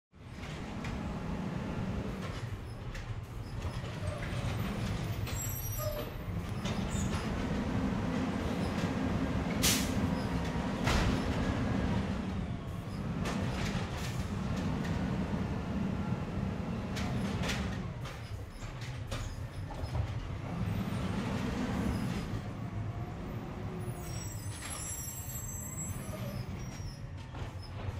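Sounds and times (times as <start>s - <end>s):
garbage truck engine rumbling: 0.2s - 27.9s.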